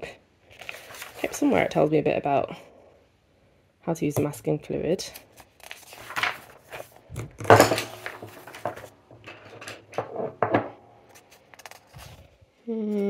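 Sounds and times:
magazine pages flipping: 0.5 - 1.6, 5.1 - 7.0, 8.0 - 9.0, 11.0 - 12.4.

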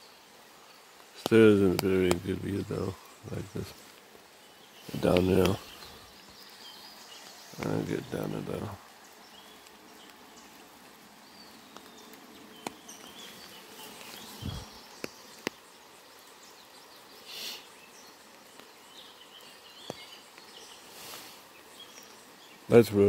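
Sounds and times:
rain hissing: 0.0 - 23.0
short hiss: 17.2 - 17.8, 20.8 - 21.5.

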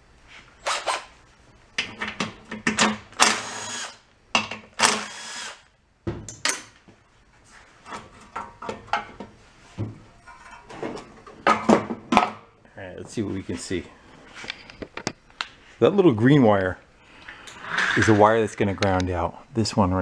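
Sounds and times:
cordless drill motor whine: 3.2 - 4.0, 4.8 - 5.6.

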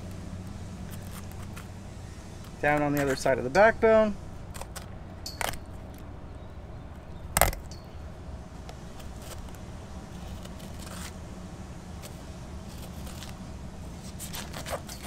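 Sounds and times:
knife scraping along bones: 14.0 - 15.0.

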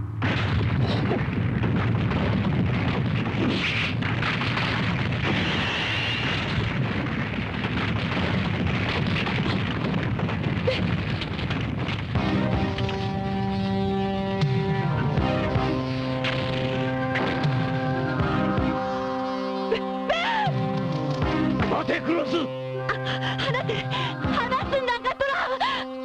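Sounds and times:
boulders crashing and tumbling: 0.2 - 13.9.

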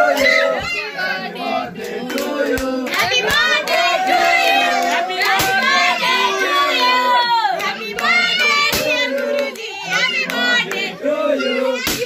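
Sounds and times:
voices singing and calling out: 0.0 - 12.0
hand claps: 1.8 - 5.8, 7.6 - 10.9.

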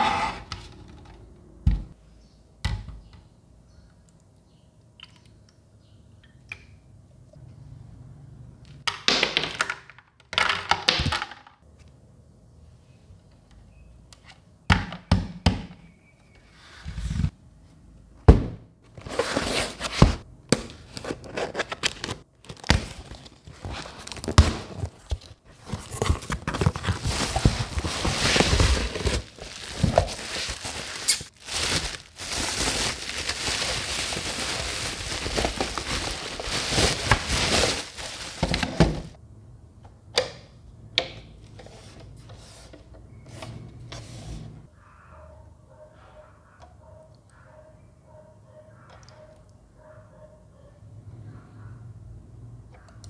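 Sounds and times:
knocks and thunks of handling: 1.6 - 1.9, 18.2 - 19.1, 35.4 - 39.2
cardboard box being opened: 19.0 - 20.2, 20.9 - 39.1
bubble wrap crinkling and tearing: 21.2 - 39.0.

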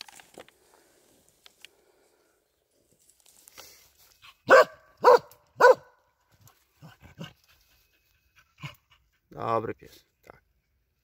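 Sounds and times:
dog barking loudly: 4.4 - 6.0.

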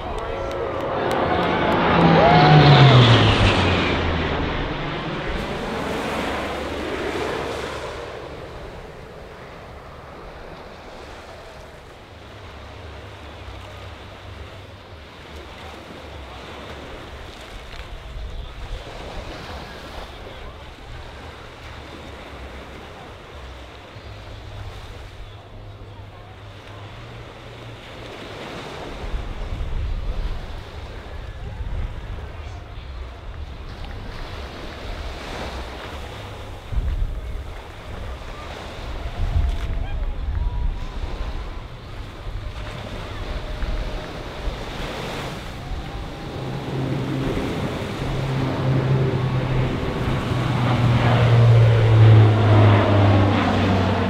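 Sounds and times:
wind on microphone: 0.0 - 14.8, 28.8 - 54.0
surf breaking: 0.0 - 54.0
turboprop plane droning overhead: 0.0 - 54.0.

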